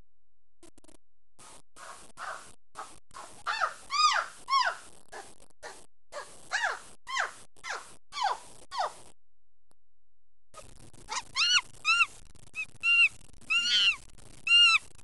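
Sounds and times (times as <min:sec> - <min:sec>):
high-pitched whooping calls: 0:11.1 - 0:14.8.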